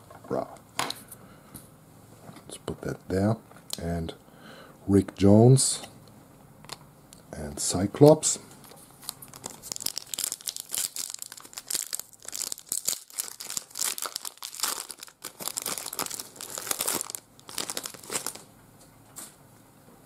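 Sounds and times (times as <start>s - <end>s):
foil wrapper crinkling and tearing: 8.7s - 18.5s.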